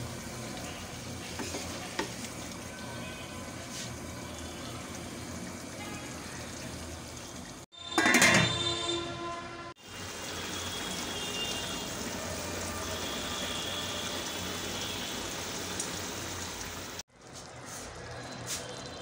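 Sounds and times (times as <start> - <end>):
chicken simmering in a pot: 0.0 - 7.9, 9.8 - 19.0.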